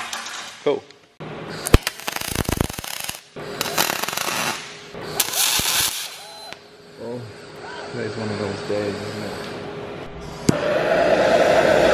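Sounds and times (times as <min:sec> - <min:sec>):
welding arc crackling hiss: 0:01.6 - 0:06.6.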